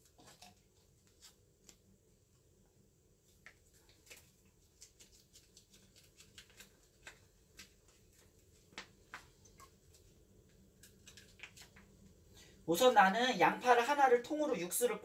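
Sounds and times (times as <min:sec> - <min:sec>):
plastic pouch crinkling: 0:03.6 - 0:10.0.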